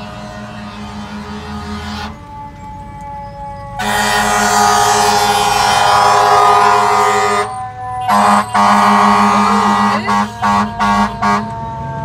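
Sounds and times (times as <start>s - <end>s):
vehicle horn blasts: 3.8s - 11.5s.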